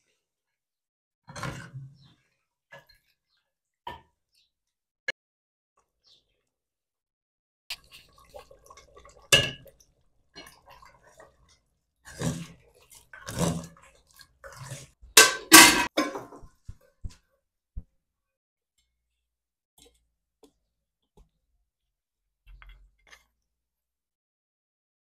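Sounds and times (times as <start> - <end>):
metal ladle scraping a pot: 12.0 - 16.2.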